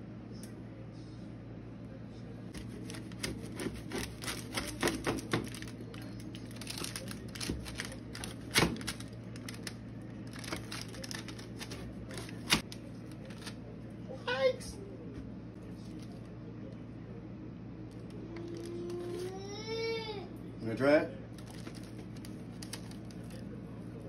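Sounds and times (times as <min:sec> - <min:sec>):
pizza cutter crunching pastry: 0:02.5 - 0:13.7.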